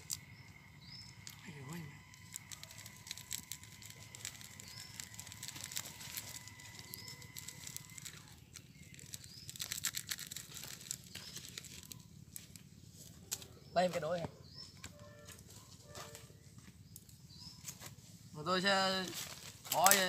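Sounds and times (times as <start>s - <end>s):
plastic sachet crinkling: 0.0s - 13.4s, 19.0s - 20.0s.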